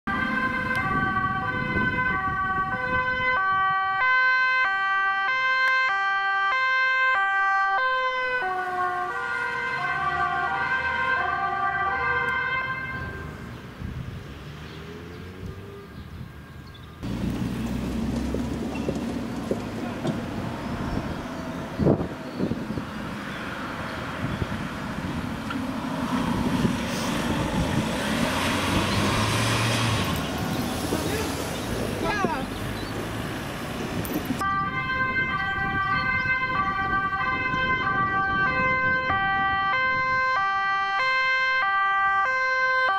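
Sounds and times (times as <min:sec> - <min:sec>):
wind on microphone: 0:00.5 - 0:04.2, 0:13.6 - 0:14.3, 0:17.8 - 0:40.8
car engine: 0:16.9 - 0:34.5
police siren two-tone: 0:34.4 - 0:42.9.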